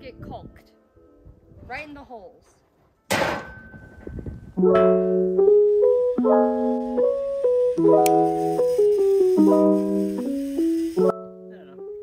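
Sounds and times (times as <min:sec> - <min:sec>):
piano-like keyboard melody: 0:04.6 - 0:12.0.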